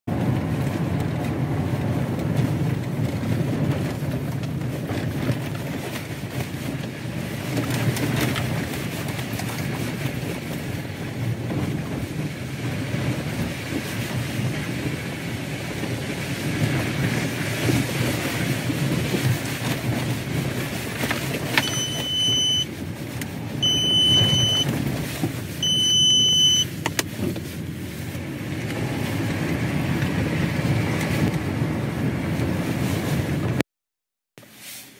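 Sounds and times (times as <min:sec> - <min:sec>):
engine and tyre rumble: 0:00.1 - 0:33.7
electronic beeps: 0:21.6 - 0:22.7, 0:23.6 - 0:24.7, 0:25.6 - 0:26.7.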